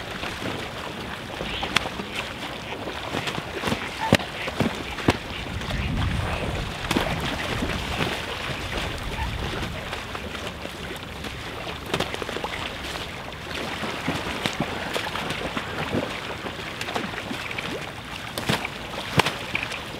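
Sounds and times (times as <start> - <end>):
wing flapping: 0.0 - 13.1
swans splashing in water: 0.0 - 19.9.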